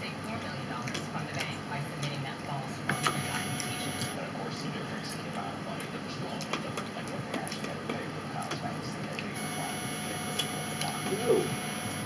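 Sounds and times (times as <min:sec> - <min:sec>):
high electrical whine: 0:02.9 - 0:04.2, 0:09.4 - 0:12.0.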